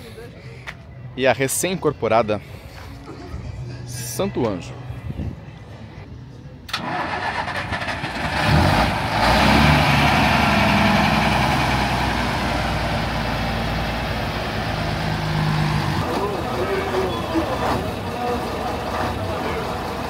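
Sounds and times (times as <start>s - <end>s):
bus diesel engine idling: 6.7s - 20.0s.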